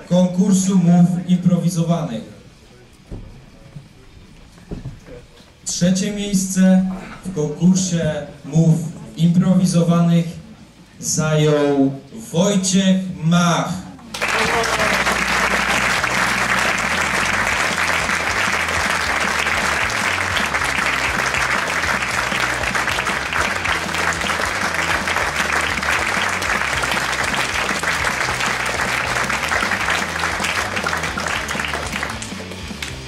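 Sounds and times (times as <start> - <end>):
audience applauding: 14.1 - 33.0
background music: 14.2 - 33.0.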